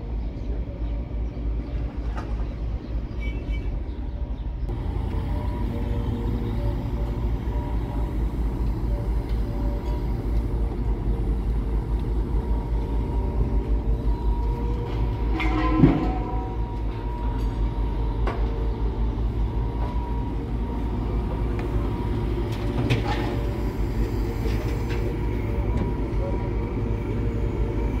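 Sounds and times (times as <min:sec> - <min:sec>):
diesel engines rumbling: 0:00.0 - 0:28.0.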